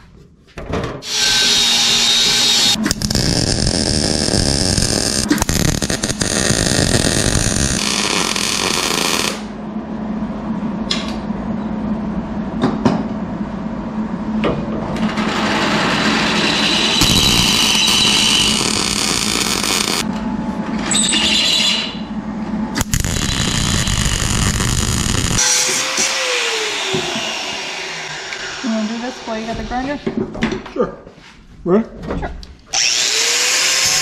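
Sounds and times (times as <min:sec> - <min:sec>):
welding arc crackling: 0:02.7 - 0:09.5, 0:17.0 - 0:20.1, 0:22.8 - 0:25.4
steady low hum: 0:02.7 - 0:15.0, 0:17.0 - 0:20.9.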